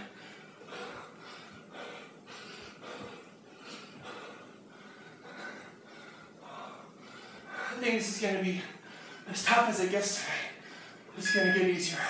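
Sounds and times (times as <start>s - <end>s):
man breathing hard: 0.0s - 7.9s, 8.7s - 9.3s, 10.2s - 11.1s.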